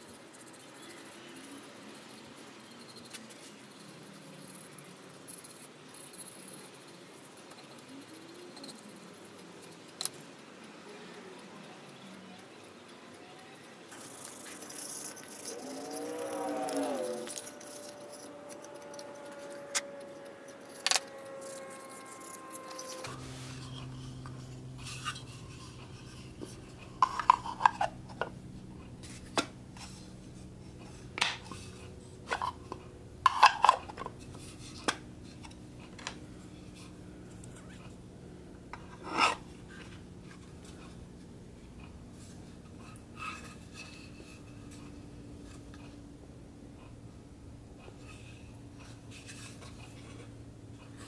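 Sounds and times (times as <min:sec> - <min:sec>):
low hum: 0:13.9 - 0:50.9.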